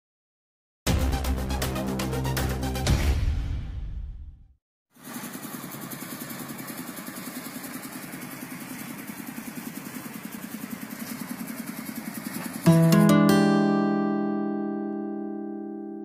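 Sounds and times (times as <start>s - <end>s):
engine idling: 5.0s - 13.0s.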